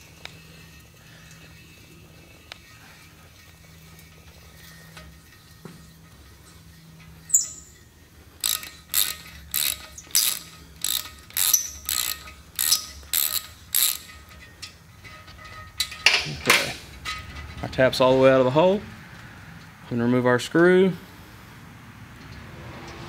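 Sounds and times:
short high squeak: 0:07.2 - 0:07.8
hand ratchet clicking: 0:08.4 - 0:14.8.

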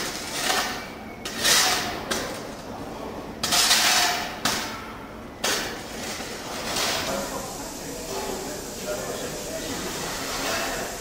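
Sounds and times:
workshop background noise: 0:00.0 - 0:11.0
abrupt hiss bursts: 0:06.7 - 0:11.0.

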